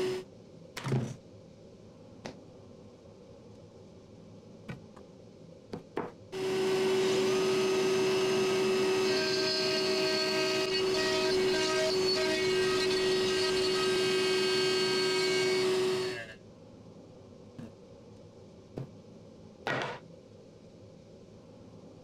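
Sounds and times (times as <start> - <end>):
dust extractor: 0.0 - 0.2, 6.4 - 16.3
router motor whining: 0.0 - 0.2, 6.4 - 16.4.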